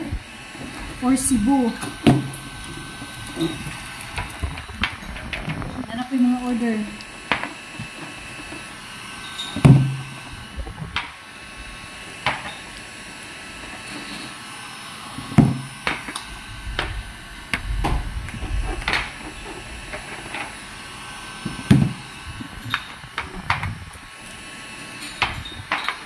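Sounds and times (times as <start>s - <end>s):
thuds on a table: 15.3s - 15.6s, 21.7s - 22.0s.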